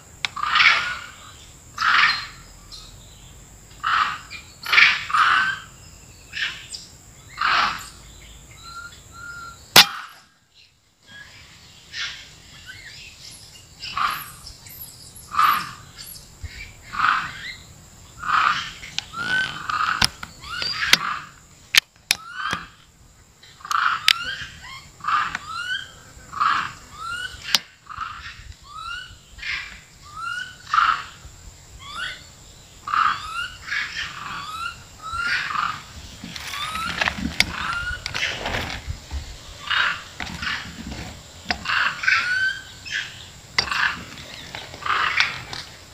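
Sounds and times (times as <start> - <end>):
macaques calling: 0.3 - 2.4, 3.8 - 6.7, 7.3 - 8.0, 8.6 - 10.3, 13.8 - 14.5, 15.3 - 16.2, 16.9 - 17.6, 18.2 - 21.4, 22.1 - 22.9, 23.5 - 31.2, 31.8 - 38.4, 39.6 - 45.6.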